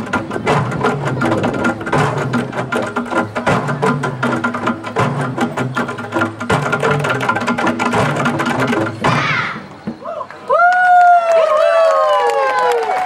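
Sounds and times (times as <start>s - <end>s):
standing drums: 0.0s - 10.2s
wooden log percussion: 0.0s - 10.4s.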